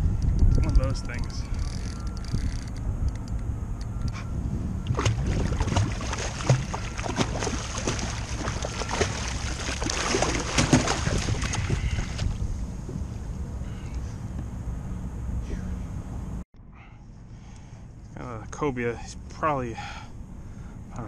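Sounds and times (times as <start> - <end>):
wind rumble on microphone: 0.0 - 16.4
water splashing against a kayak: 4.9 - 12.3.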